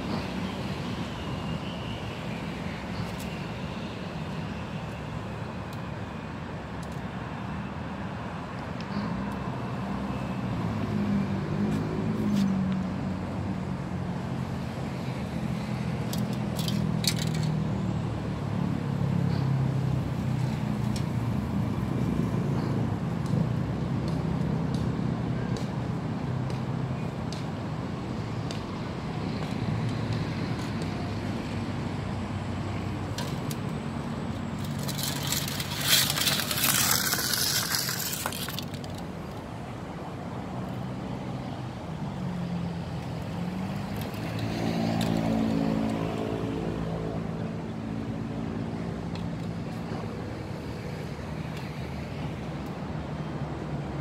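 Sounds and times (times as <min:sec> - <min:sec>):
road traffic hum: 0:00.0 - 0:54.0
vehicle engine: 0:09.4 - 0:51.4.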